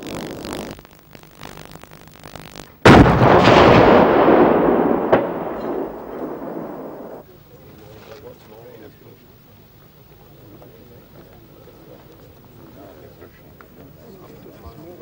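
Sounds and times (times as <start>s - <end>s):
cannon firing blast: 2.8s - 7.2s
rolling rumble: 2.8s - 7.2s
sharp crack: 2.8s - 7.2s.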